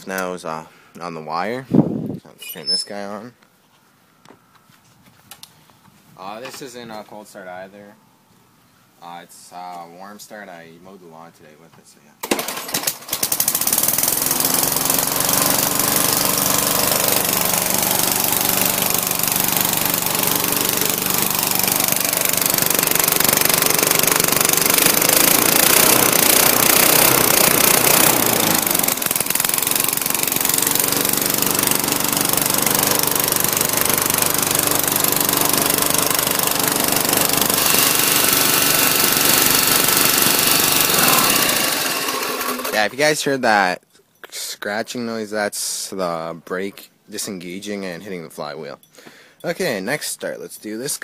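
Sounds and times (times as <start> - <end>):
lawn mower engine running: 12.2 - 43.0.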